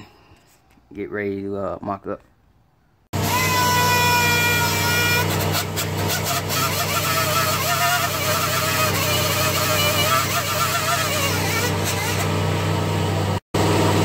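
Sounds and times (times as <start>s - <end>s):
pneumatic sander whining: 3.2s - 13.1s.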